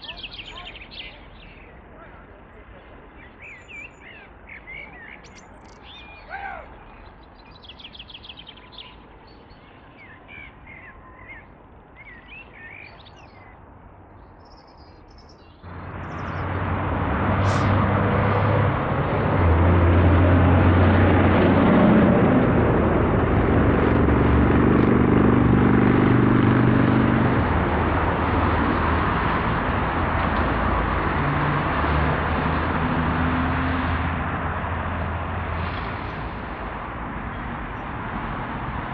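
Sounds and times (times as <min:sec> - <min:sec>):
small birds chirping: 0:00.0 - 0:02.2, 0:02.8 - 0:16.5
loud steady rushing noise: 0:15.6 - 0:38.9.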